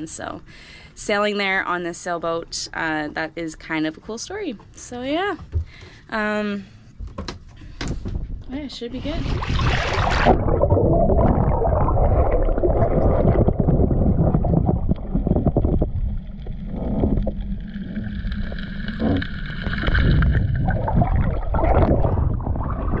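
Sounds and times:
water sloshing and gurgling: 0:06.8 - 0:23.0.

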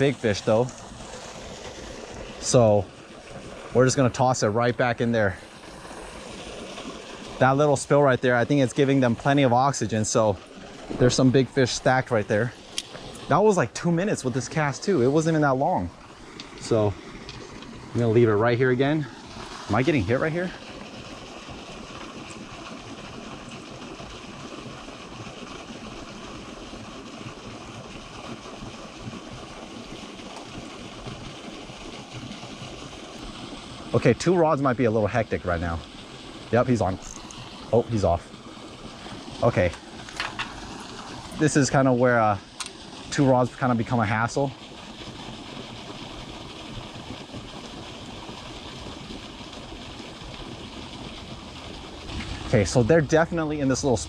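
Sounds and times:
low rumble: 0:52.0 - 0:54.0.

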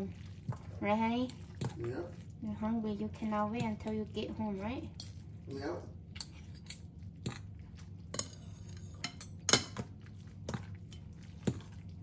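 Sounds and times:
cutlery clinking on a ceramic bowl: 0:08.1 - 0:09.9.

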